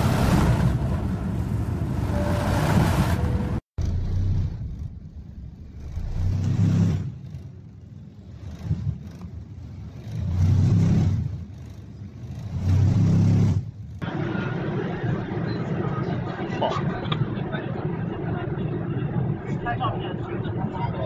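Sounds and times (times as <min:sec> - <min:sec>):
jet engine and airflow rumble: 0:13.5 - 0:21.0.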